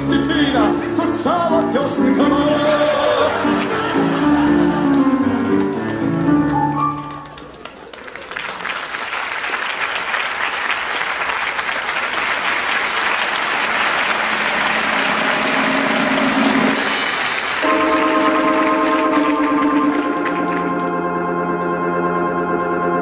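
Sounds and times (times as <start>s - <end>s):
orchestra playing: 0.0s - 7.5s, 13.3s - 23.0s
audience applause: 3.3s - 21.2s.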